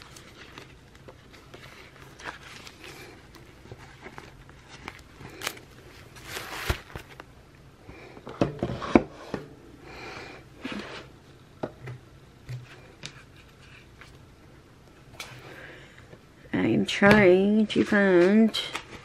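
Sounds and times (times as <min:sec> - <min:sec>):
paper rustling: 0:00.0 - 0:07.2.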